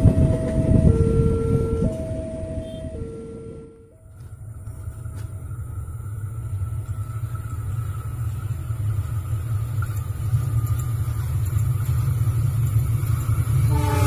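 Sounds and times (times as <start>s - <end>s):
locomotive engine rumble: 0.0s - 14.0s
locomotive horn: 0.9s - 3.8s, 13.7s - 14.0s.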